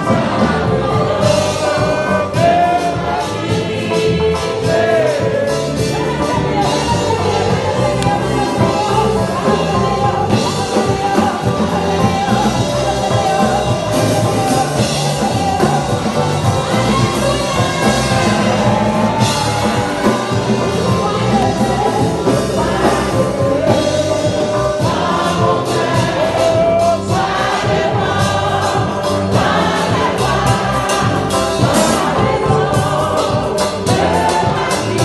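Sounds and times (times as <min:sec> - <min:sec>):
band accompaniment with drums: 0:00.0 - 0:35.0
congregation singing gospel song: 0:00.0 - 0:35.0.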